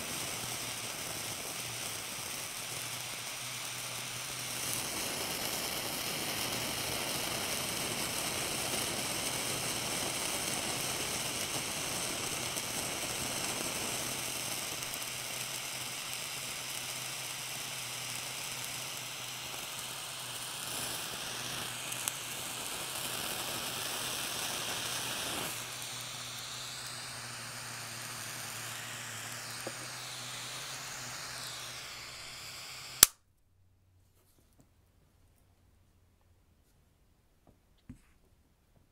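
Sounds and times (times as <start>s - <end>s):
torch flame hissing: 0.0s - 33.2s
sharp click: 32.9s - 33.2s.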